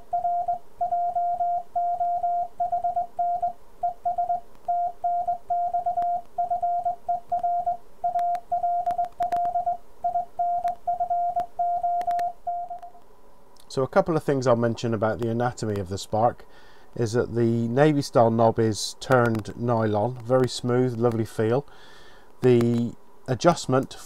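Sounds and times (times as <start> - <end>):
morse code beep tone: 0.0 - 13.0
sharp clicks: 8.1 - 9.7, 10.6 - 13.7, 19.0 - 21.2.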